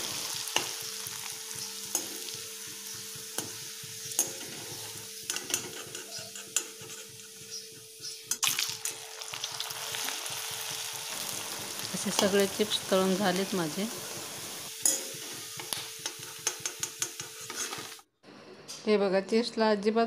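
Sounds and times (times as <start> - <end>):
chips sizzling in hot oil: 0.0 - 18.0
spoon scraping pan: 3.3 - 8.2, 14.8 - 18.0.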